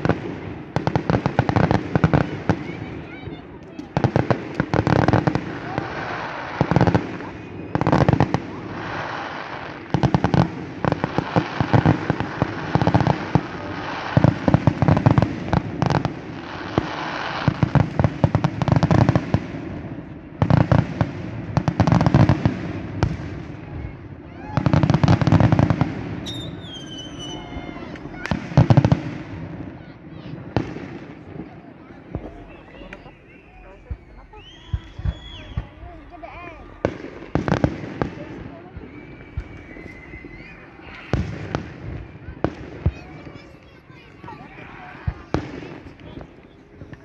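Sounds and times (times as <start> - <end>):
fireworks bursts and crackling: 0.0 - 47.0
high falling whistles: 26.2 - 27.7, 32.5 - 35.8, 38.8 - 41.2.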